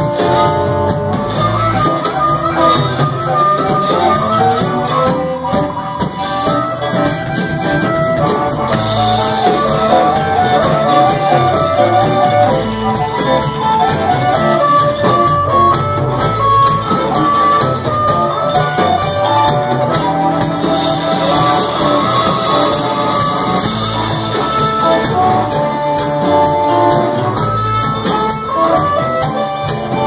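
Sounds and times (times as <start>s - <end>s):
blues harmonica melody: 0.0s - 30.0s
drum kit cymbals: 0.0s - 30.0s
electric bass: 0.0s - 30.0s
electric guitars: 0.0s - 30.0s.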